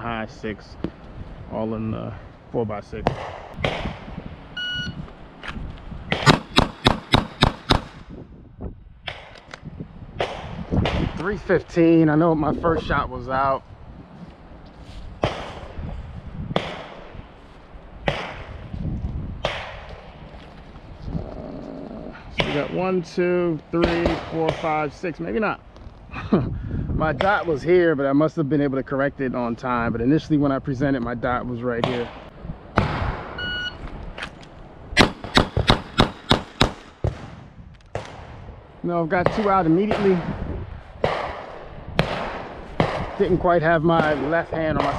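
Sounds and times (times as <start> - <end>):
shot timer start beep: 4.6 - 5.0, 33.4 - 33.8
gunshots with echo: 6.1 - 8.0, 18.0 - 18.6, 19.4 - 19.9, 22.4 - 22.8, 35.0 - 37.4, 39.2 - 44.9
rapid pistol shots: 6.1 - 8.0, 18.0 - 18.5, 35.0 - 37.3, 41.0 - 43.3, 43.9 - 44.9
footsteps on sandy grass: 12.3 - 21.0.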